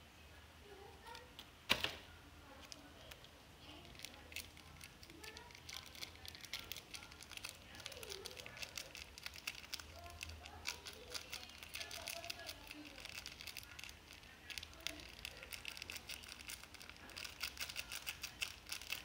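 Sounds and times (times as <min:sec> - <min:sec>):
foil sachet crinkling: 0:03.6 - 0:19.0.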